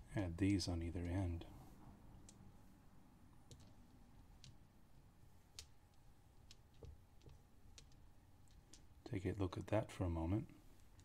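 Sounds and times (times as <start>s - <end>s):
plastic dice clicking: 2.2s - 2.4s, 3.3s - 9.0s.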